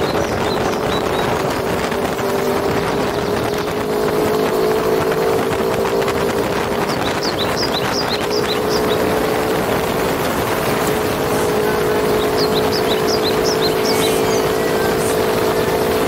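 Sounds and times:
motorcycle engine running: 0:00.0 - 0:16.0
wind rushing over microphone: 0:00.0 - 0:16.0
short high chirps: 0:12.2 - 0:15.2.

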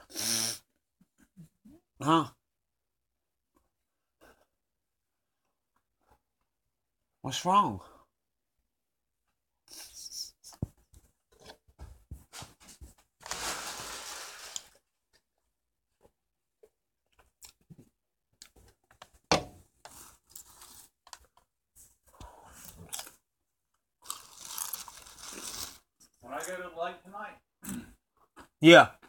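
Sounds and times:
rustling and tearing: 0:13.2 - 0:14.8, 0:24.1 - 0:25.8.

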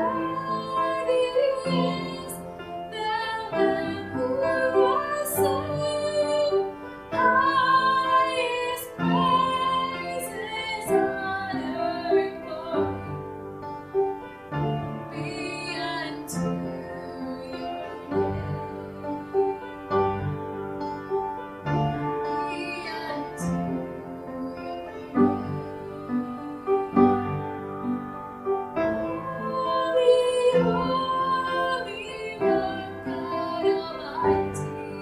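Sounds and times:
woman singing with vibrato: 0:00.0 - 0:13.2, 0:15.1 - 0:19.8, 0:22.2 - 0:27.5, 0:28.9 - 0:35.0.

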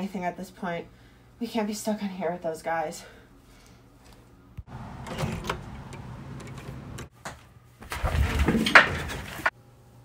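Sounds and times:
knocks and clatter: 0:05.0 - 0:09.5.

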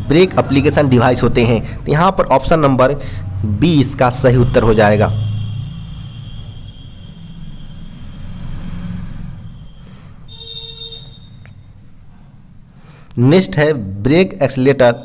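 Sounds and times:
short horn toot: 0:05.1 - 0:11.6.

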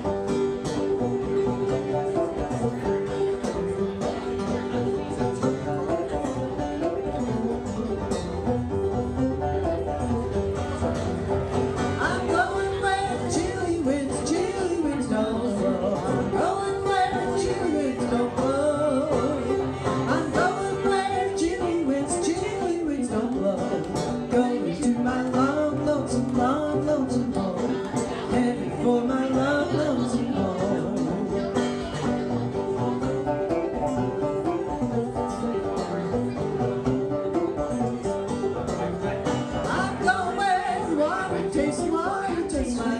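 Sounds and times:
plucked banjos playing: 0:00.0 - 0:42.9
woman singing: 0:12.0 - 0:31.5, 0:39.7 - 0:42.9.

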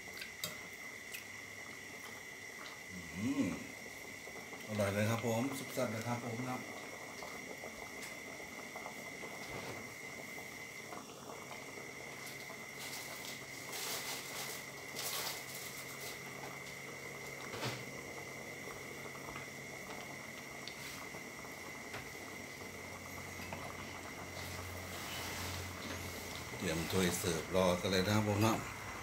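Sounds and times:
curry simmering and bubbling: 0:00.3 - 0:29.0.

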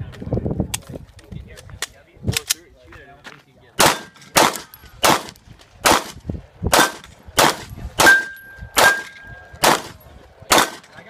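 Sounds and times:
bullets clanging on steel: 0:03.8 - 0:06.1, 0:06.8 - 0:11.0
pistol shots: 0:03.8 - 0:11.0
steel plate ringing: 0:08.0 - 0:09.4.

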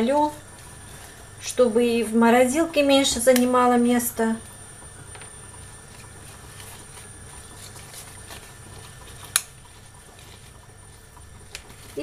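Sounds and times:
rustling of leaves and plastic bag: 0:00.0 - 0:02.7, 0:05.8 - 0:12.0
low steady hum: 0:00.0 - 0:12.0
sharp snap of leaf stalk: 0:09.3 - 0:09.5.

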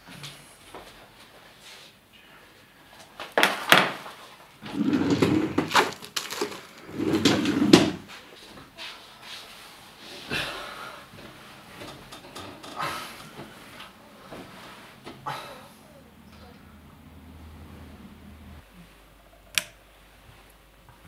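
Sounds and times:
wooden drawer sliding: 0:04.6 - 0:08.1
papers being handled: 0:05.5 - 0:06.9.

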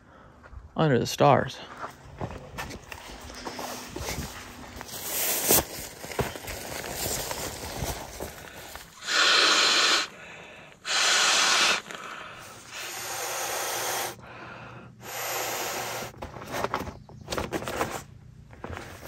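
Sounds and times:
breaths blown into valve: 0:09.0 - 0:10.2, 0:10.8 - 0:14.2, 0:15.0 - 0:16.1.

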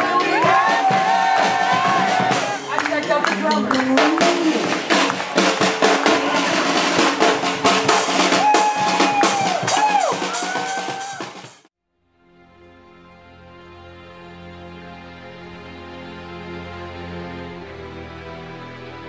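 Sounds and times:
brass band playing upbeat tune: 0:00.0 - 0:11.7.

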